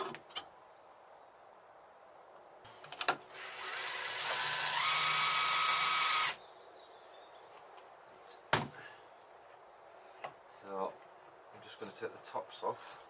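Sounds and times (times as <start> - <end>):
power tool motor whirring: 3.3 - 6.4.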